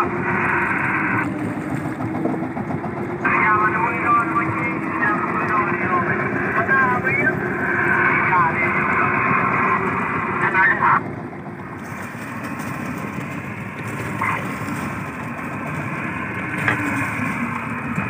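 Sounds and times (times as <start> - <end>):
boat engine running: 0.0 - 18.0
water noise: 0.0 - 18.0
wind: 0.0 - 18.0.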